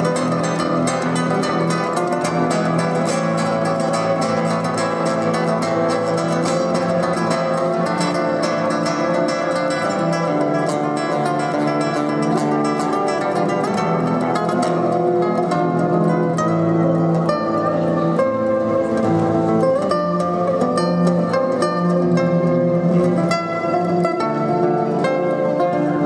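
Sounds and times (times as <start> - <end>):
classical guitar plucked fast: 0.0 - 26.0.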